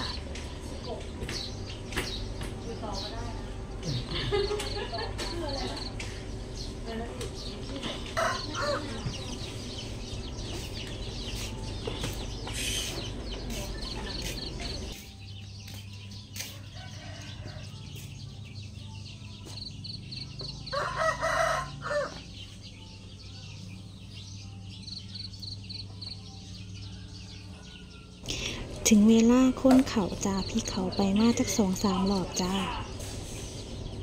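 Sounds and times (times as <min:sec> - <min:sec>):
rooster crowing: 0:20.7 - 0:22.2.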